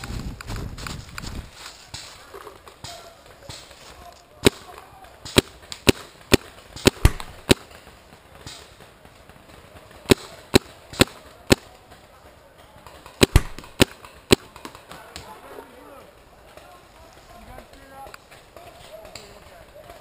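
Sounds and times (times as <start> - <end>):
paintball marker firing: 4.4 - 12.1, 12.8 - 15.3.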